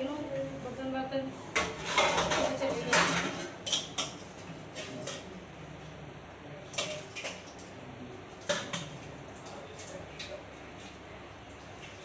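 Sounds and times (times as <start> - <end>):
dishes and pots clattering: 1.5 - 5.3.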